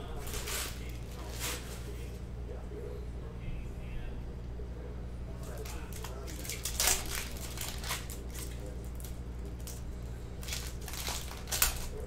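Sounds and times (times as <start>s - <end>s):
wrapper crinkling and tearing: 0.2s - 1.9s, 5.4s - 12.0s.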